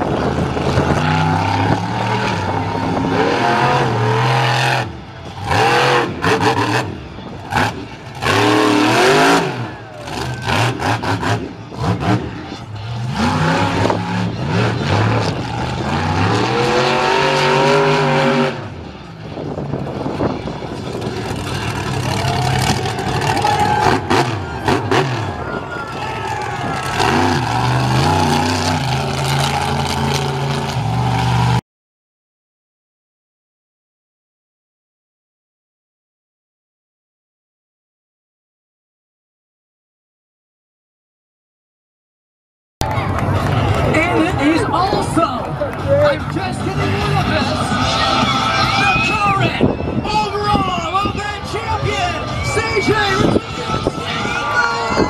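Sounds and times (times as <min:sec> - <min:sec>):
truck engine revving: 0:00.0 - 0:31.6, 0:42.8 - 0:49.7.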